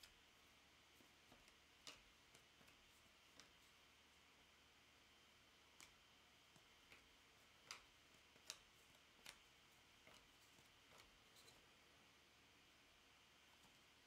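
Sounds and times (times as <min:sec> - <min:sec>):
faint clicks of cards handled: 0:00.9 - 0:03.9, 0:05.6 - 0:11.8.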